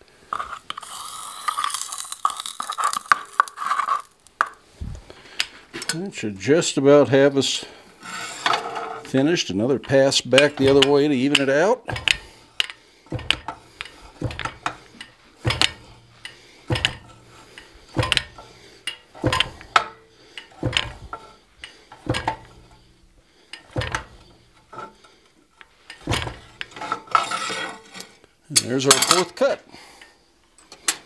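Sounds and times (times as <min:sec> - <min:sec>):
fly press clanking on iron bar: 0:09.8 - 0:22.9, 0:23.5 - 0:25.1, 0:25.9 - 0:28.1.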